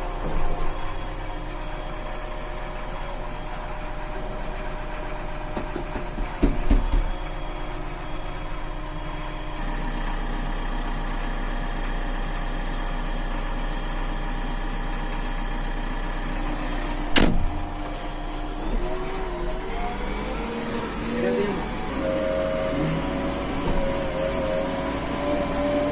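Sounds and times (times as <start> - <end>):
diesel engine running: 0.0 - 25.9
sharp clunk: 17.1 - 17.6.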